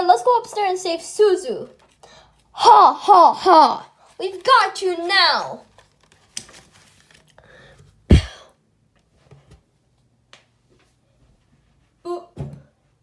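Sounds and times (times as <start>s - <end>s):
book pages turning: 1.7s - 2.6s, 4.0s - 7.8s.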